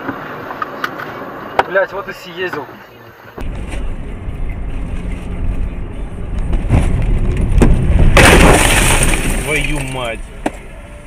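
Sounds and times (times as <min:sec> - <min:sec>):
car engine and road rumble: 0:00.0 - 0:11.0
car crash: 0:06.5 - 0:10.6.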